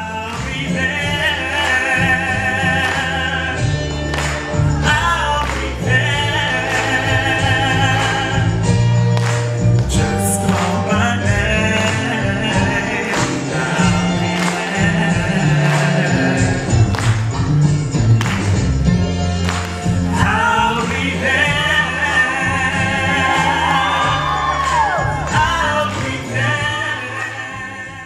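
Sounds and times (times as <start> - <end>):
man and woman singing: 0.0 - 3.8, 4.6 - 8.6, 9.9 - 16.8, 20.1 - 28.0
musical accompaniment with low bass: 0.0 - 28.0.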